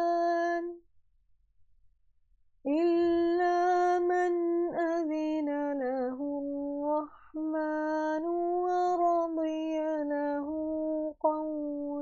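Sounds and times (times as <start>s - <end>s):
woman chanting melodically: 2.7s - 12.0s.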